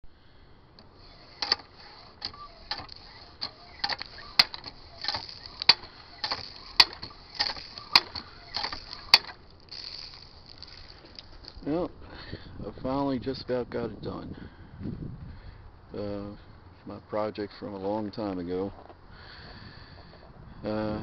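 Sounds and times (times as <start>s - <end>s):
sharp metallic click: 0.8s - 10.8s
hand pump clanking and squeaking: 0.9s - 11.6s.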